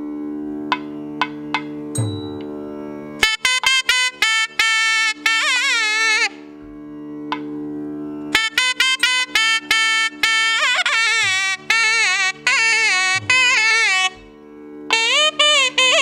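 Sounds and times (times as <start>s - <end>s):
reed wind instrument melody: 2.0s - 6.7s, 8.2s - 16.0s
steady drone: 6.2s - 15.8s.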